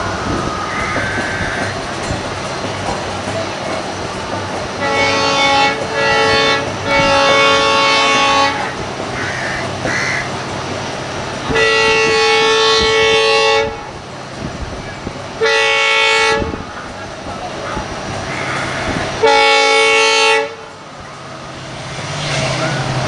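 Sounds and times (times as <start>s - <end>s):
train horn blasts: 4.8s - 8.8s, 11.5s - 13.9s, 15.4s - 16.6s, 19.2s - 20.7s.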